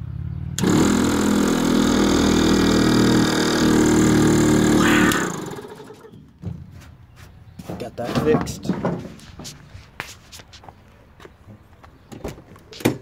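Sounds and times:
electric air compressor running: 0:00.6 - 0:06.1.

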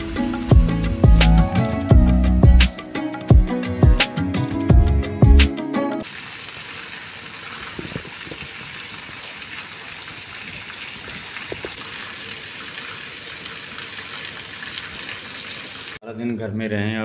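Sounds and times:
heavy rain on pavement: 0:06.0 - 0:16.0.

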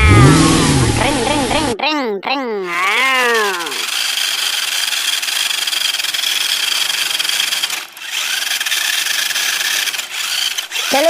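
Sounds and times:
toy car wheels grinding over rock: 0:02.7 - 0:11.0.

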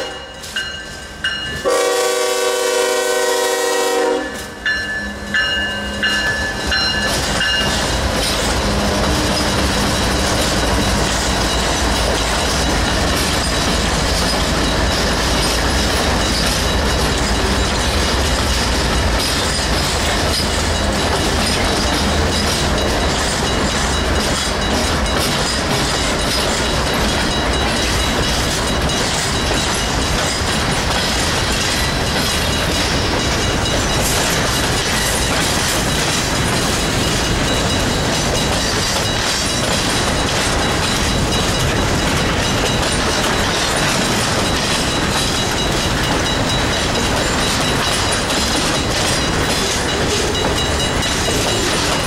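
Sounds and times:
crossing bell dinging: 0:00.0 - 0:52.0
diesel locomotives rumbling: 0:00.0 - 0:52.0
train wheels clacking on rails: 0:00.0 - 0:52.0
locomotive air horn: 0:01.6 - 0:04.6.

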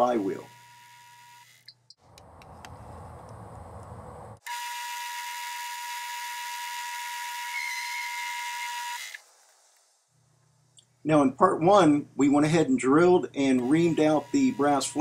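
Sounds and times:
lathe high whine: 0:13.6 - 0:15.0.

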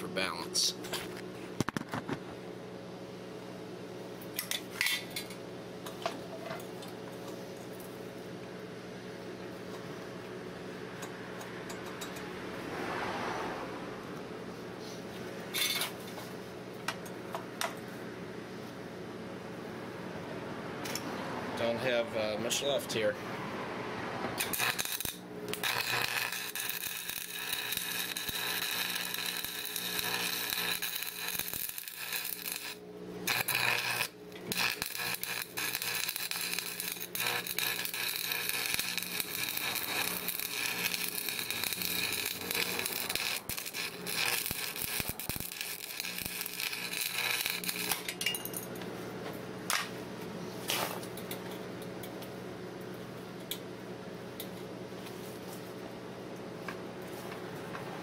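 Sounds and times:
steady low hum: 0:13.4 - 0:58.0
welding arc crackling: 0:24.4 - 0:48.2.

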